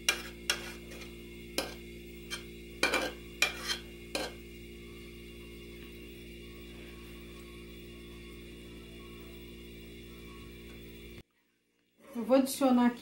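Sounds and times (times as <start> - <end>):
metal spoon scraping saucepan: 0.0 - 4.4
faint steady hum: 0.0 - 13.0.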